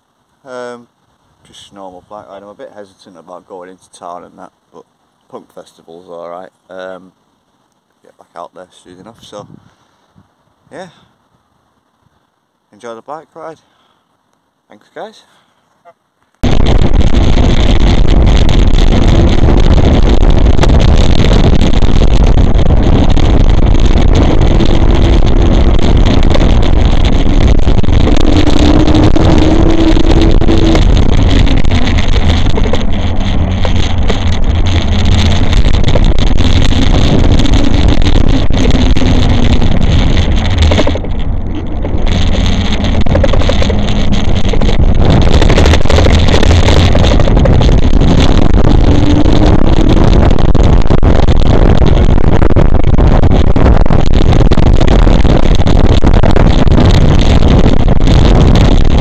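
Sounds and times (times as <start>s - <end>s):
wind rushing over microphone: 8.1s - 13.5s, 16.4s - 59.0s
faint hum drifting in pitch: 15.8s - 59.0s.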